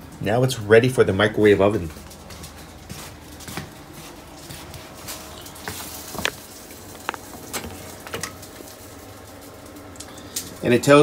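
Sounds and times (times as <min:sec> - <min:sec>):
plastic wrapping crinkling: 0:01.8 - 0:10.0.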